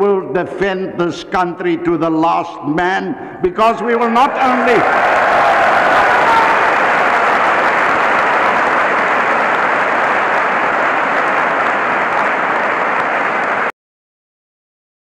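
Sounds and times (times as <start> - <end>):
large audience applauding: 4.2 - 13.7.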